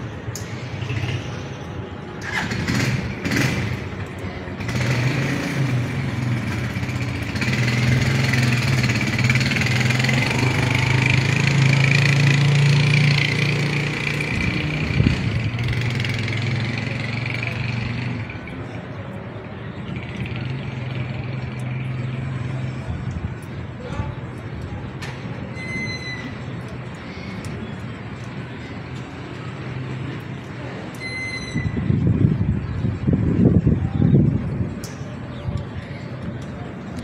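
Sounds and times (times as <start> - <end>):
vehicle engine humming: 0.0 - 25.5.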